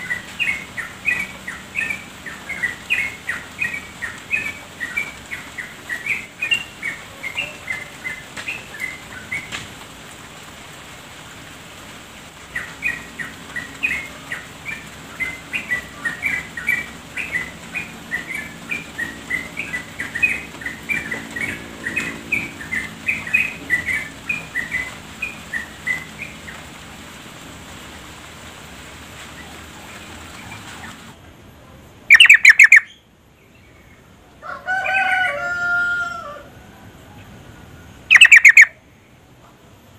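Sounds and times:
bird chattering: 32.1s - 33.0s, 38.1s - 38.8s.

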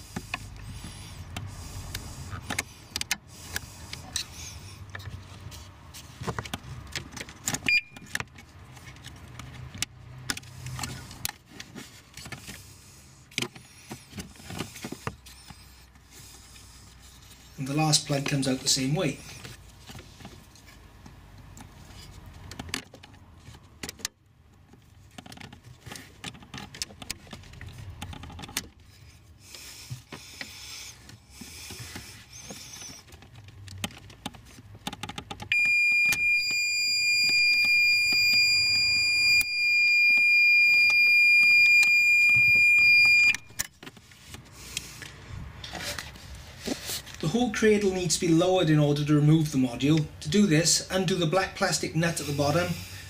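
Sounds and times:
clicks and rustles of plastic plugs: 1.3s - 12.6s, 19.4s - 36.6s
high-pitched electronic beep: 35.5s - 43.6s.

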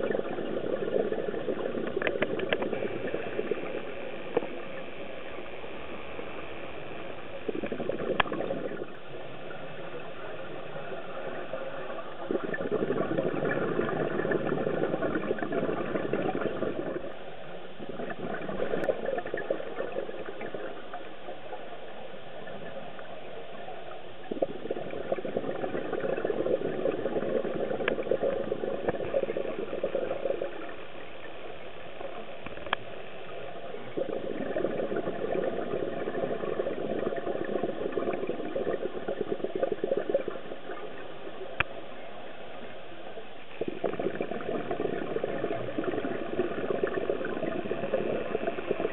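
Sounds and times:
diver's bubbling exhalations underwater: 0.0s - 4.5s, 7.4s - 9.1s, 12.2s - 17.2s, 17.8s - 21.0s, 24.3s - 30.9s, 33.8s - 41.4s, 43.6s - 48.9s
steady hum with faint whine: 0.0s - 48.9s.

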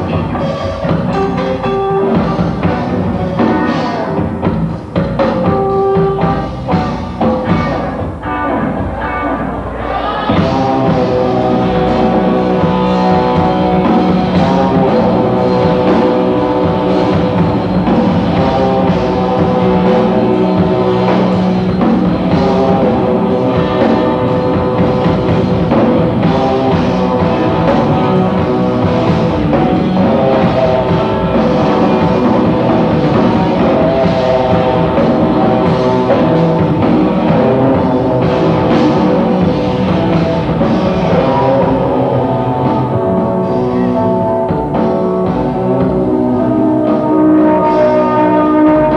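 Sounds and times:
rock band playing live: 0.0s - 48.9s.

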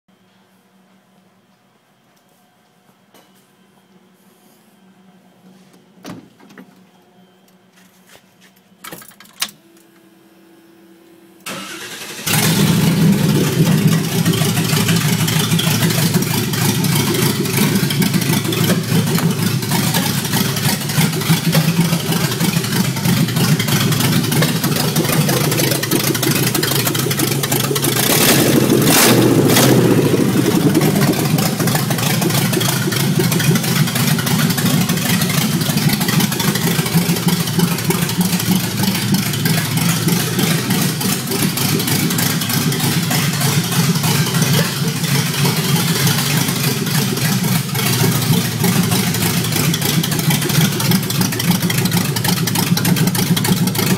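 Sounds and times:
engine cranking and idling loudly: 11.5s - 53.9s.

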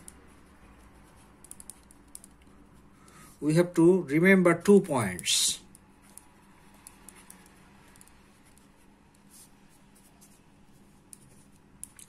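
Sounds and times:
pen scratching on paper: 0.0s - 2.1s
faint low hum: 0.0s - 12.0s.

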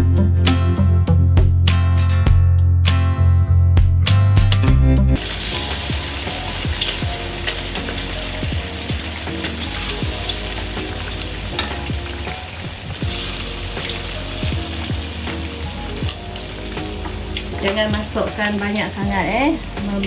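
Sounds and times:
guitar music: 0.0s - 20.0s
chicken frying in hot oil: 5.2s - 20.0s.

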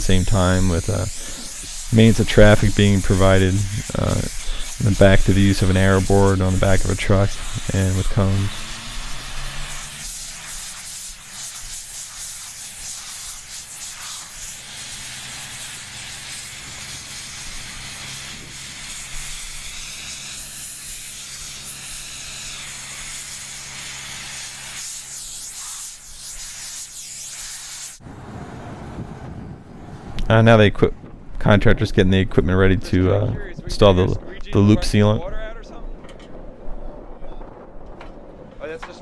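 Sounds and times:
steady low hum: 0.0s - 25.4s
compressed air hissing: 0.0s - 28.0s.

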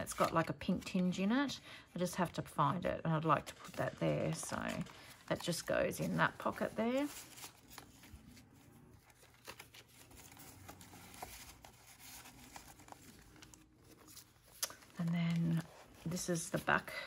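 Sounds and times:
paper rustling and scraping: 0.0s - 1.1s, 3.1s - 17.0s.

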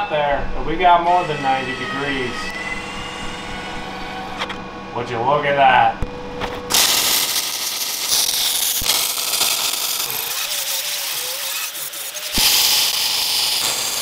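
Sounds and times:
angle grinder whine: 0.0s - 14.0s
welder crackling and hissing: 6.7s - 14.0s.

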